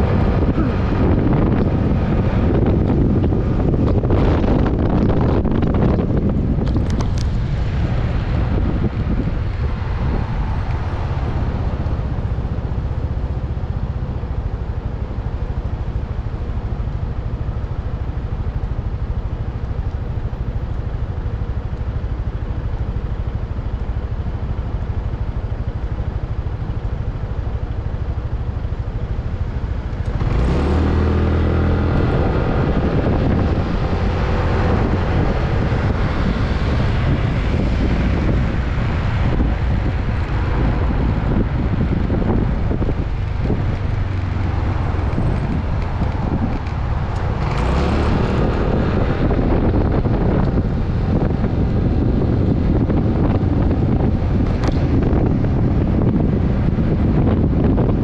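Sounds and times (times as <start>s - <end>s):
scooter engine accelerating: 0.0s - 12.4s, 29.8s - 58.0s
road noise: 0.0s - 58.0s
wind rumble on microphone: 0.0s - 58.0s.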